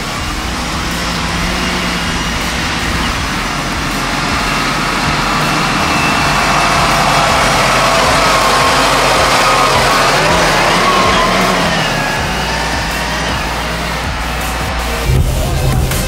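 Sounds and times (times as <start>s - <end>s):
tractor diesel engines under load: 0.0s - 16.0s.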